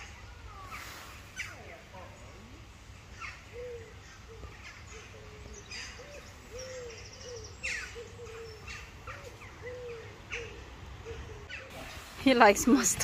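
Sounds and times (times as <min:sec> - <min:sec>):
small birds chirping: 0:00.0 - 0:13.0
bird giving low hoots: 0:03.2 - 0:11.7.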